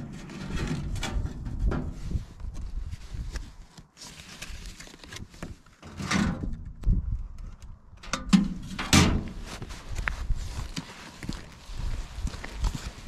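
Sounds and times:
paper envelopes rustling: 2.5s - 5.8s
mailbox lids knocking shut: 8.1s - 9.3s.

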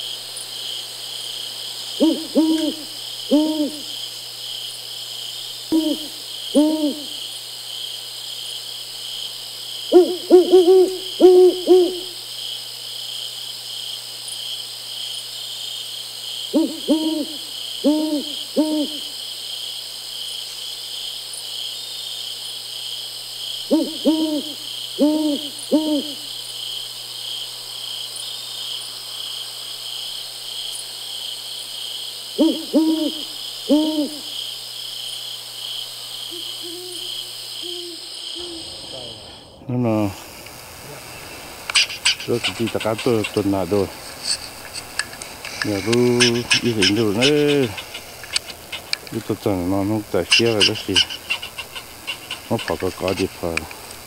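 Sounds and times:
crickets chirping: 0.0s - 54.0s
owl hooting: 2.0s - 4.0s, 5.7s - 7.3s, 9.9s - 12.2s, 16.5s - 19.2s, 23.6s - 26.3s, 32.4s - 34.4s, 36.3s - 39.6s, 40.8s - 53.6s.

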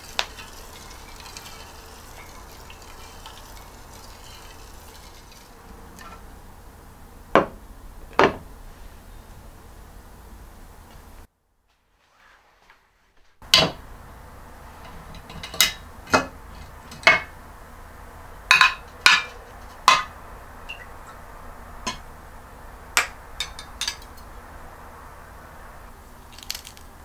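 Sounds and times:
ladle clinking against glass jar: 0.0s - 5.5s, 20.7s - 21.2s, 23.4s - 24.3s.

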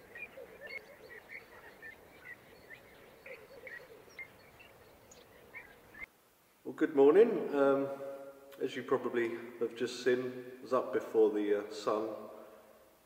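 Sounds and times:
bird warbling call: 0.0s - 6.1s
birds chirping: 0.0s - 6.1s.

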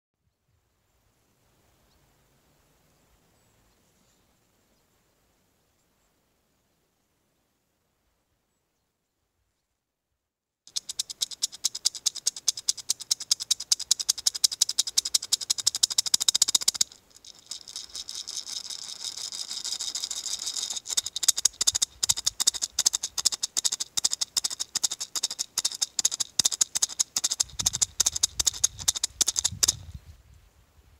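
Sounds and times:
gourd maraca shaken rapidly: 10.7s - 30.1s.

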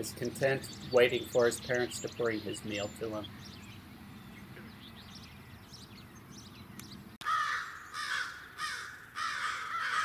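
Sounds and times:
faint bird chirping: 0.1s - 8.2s
crows cawing loudly: 7.2s - 10.0s.

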